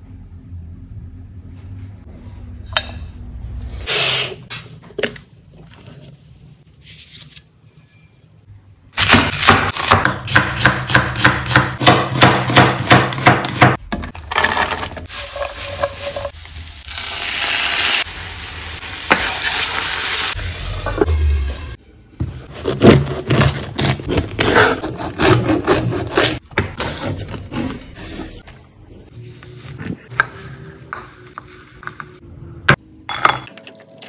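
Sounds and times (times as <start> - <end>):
knife chopping onion on wooden board: 9.5 - 13.8.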